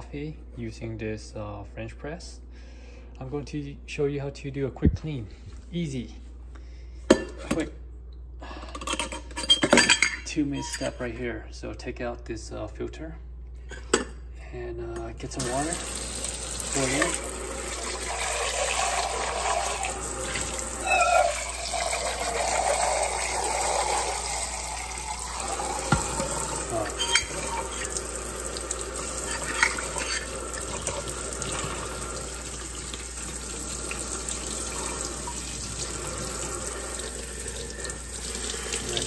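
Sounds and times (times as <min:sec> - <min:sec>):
faucet water splashing into metal: 0:15.4 - 0:39.0.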